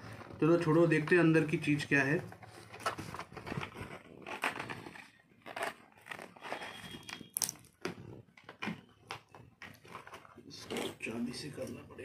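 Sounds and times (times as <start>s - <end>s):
plastic wrapping crinkling: 0.0s - 12.0s
packaging taps and scrapes: 2.2s - 11.0s.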